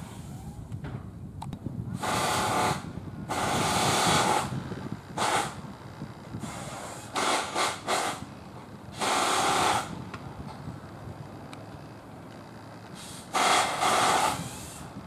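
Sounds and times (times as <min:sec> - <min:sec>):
bursts of hissing: 0:02.0 - 0:04.5, 0:05.2 - 0:05.6, 0:06.4 - 0:08.3, 0:08.9 - 0:10.0, 0:13.0 - 0:15.0.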